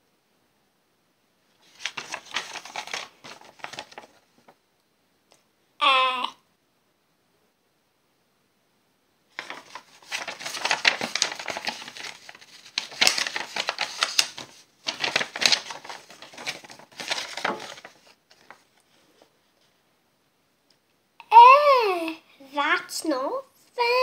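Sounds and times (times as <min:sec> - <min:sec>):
paper crinkling: 0:01.6 - 0:04.6, 0:09.3 - 0:19.3.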